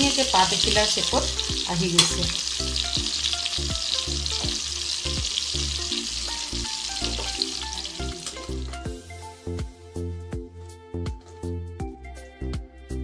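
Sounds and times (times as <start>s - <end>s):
hot oil sizzling in a pan: 0.0s - 9.5s
background music with steady beat: 0.0s - 13.0s.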